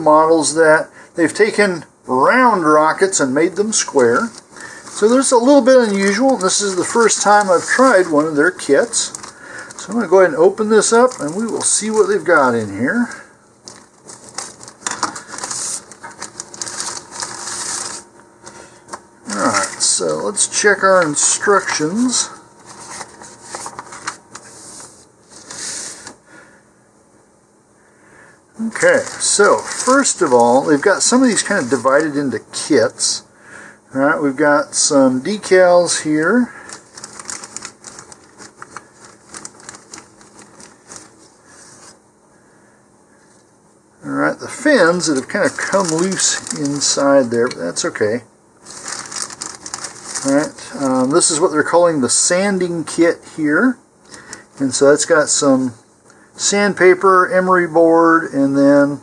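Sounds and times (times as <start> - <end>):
plastic bag crinkling: 3.5 - 26.2, 28.6 - 32.3, 35.8 - 42.0, 44.5 - 51.5
scissors cutting plastic bag: 4.1 - 10.0, 36.7 - 41.1, 45.0 - 47.7, 48.7 - 51.1.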